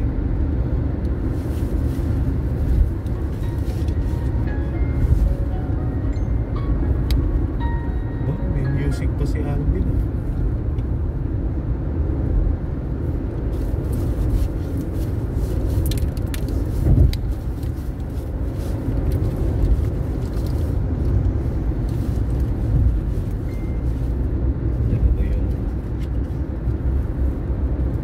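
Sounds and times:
engine and tyre rumble: 0:00.0 - 0:28.0.

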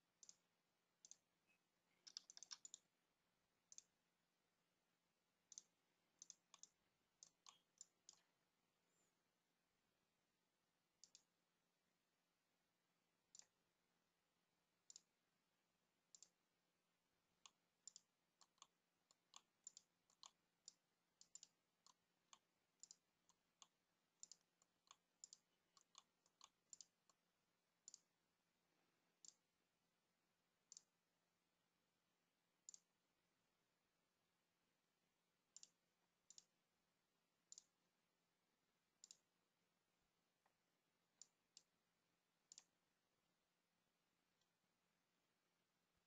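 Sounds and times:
mouse and keyboard clicks: 0:01.9 - 0:02.9, 0:05.5 - 0:08.3, 0:11.0 - 0:11.3, 0:14.8 - 0:15.1, 0:16.1 - 0:16.4, 0:17.4 - 0:27.2, 0:35.5 - 0:36.5, 0:39.0 - 0:39.3, 0:42.5 - 0:42.7.

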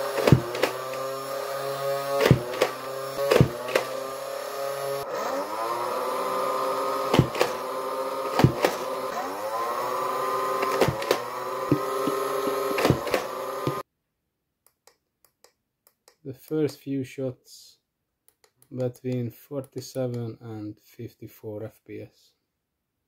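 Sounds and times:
flywheel motors whining: 0:00.0 - 0:13.8.

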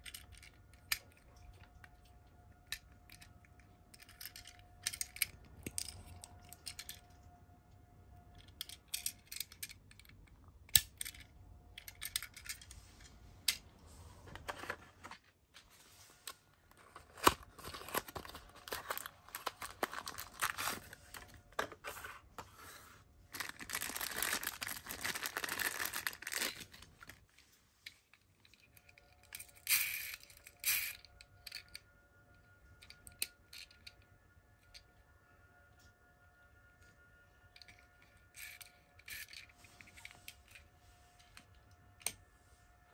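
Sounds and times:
toy cars clicking: 0:00.0 - 0:01.9, 0:02.6 - 0:07.1, 0:08.3 - 0:12.7, 0:27.8 - 0:31.8, 0:37.6 - 0:40.6.

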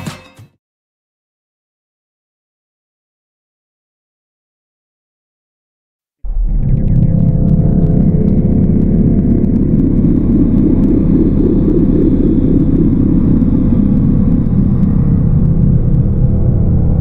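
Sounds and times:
dark ambient drone music: 0:06.3 - 0:17.0.

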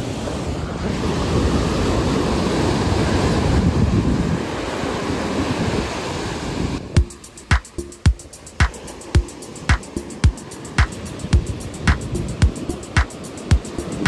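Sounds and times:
wind blowing across microphone: 0:00.0 - 0:07.0
sea waves washing on beach: 0:00.0 - 0:14.0
music with heavy beat: 0:07.0 - 0:14.0.

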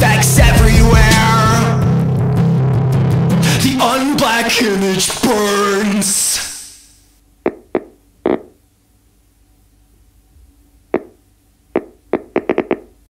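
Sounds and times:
faint steady hum: 0:05.2 - 0:13.0.

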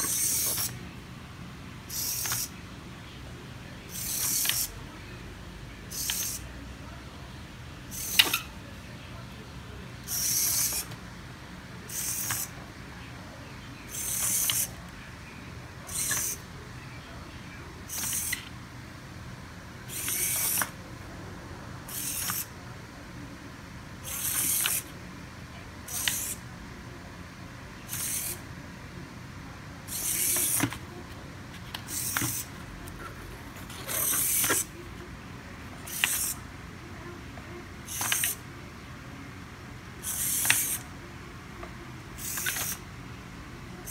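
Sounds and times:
servo motors whirring: 0:00.0 - 0:00.8, 0:01.9 - 0:02.5, 0:03.9 - 0:04.7, 0:05.9 - 0:06.4, 0:07.9 - 0:08.4, 0:10.1 - 0:10.9, 0:11.9 - 0:12.5, 0:13.9 - 0:14.7, 0:15.9 - 0:16.4, 0:17.9 - 0:18.4, 0:19.9 - 0:20.8, 0:21.9 - 0:22.5, 0:24.1 - 0:24.9, 0:25.9 - 0:26.4, 0:27.9 - 0:28.4, 0:29.9 - 0:30.8, 0:31.8 - 0:34.8, 0:35.9 - 0:36.4, 0:37.9 - 0:38.4, 0:40.0 - 0:40.8, 0:42.2 - 0:42.8.

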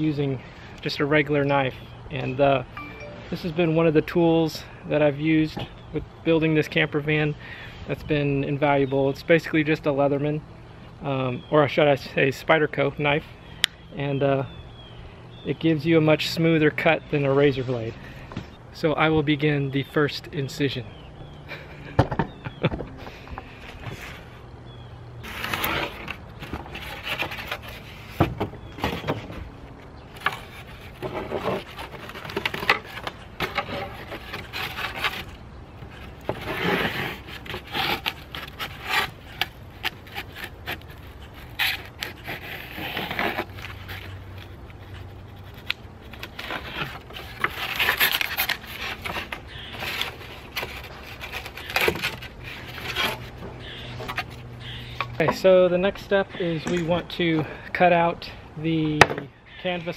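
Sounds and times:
knife sawing through foam board: 0:36.3 - 0:43.8, 0:46.2 - 0:53.3.

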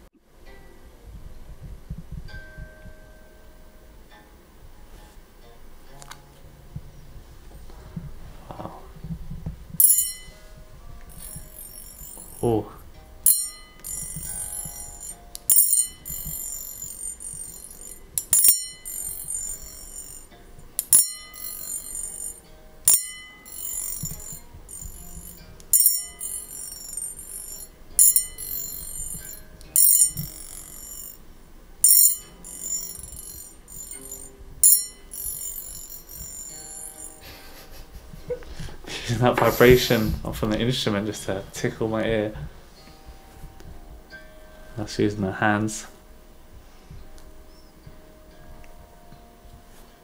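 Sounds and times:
tuning fork struck and ringing: 0:09.8 - 0:38.4.

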